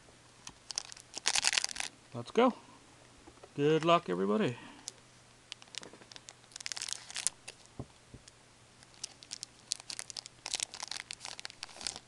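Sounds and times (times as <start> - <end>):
foil wrapper crinkling and tearing: 0.6 - 1.9, 4.8 - 7.7, 8.8 - 12.0.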